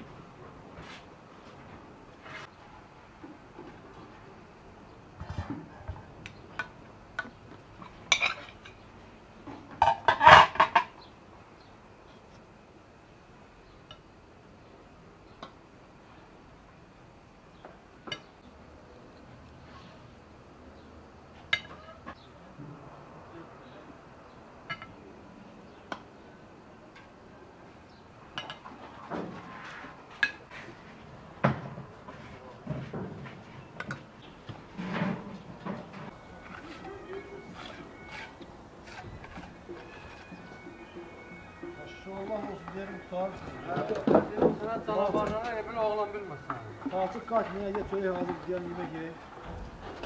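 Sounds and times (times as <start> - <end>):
plate and spoon clinking on pot: 8.1 - 8.8
soft scrape: 29.4 - 30.9.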